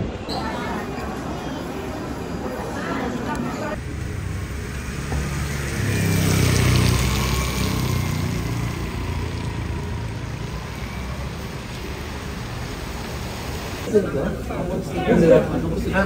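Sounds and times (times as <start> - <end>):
vehicle engine rumbling past: 3.7 - 13.8
rain and wet road hiss: 3.8 - 13.9.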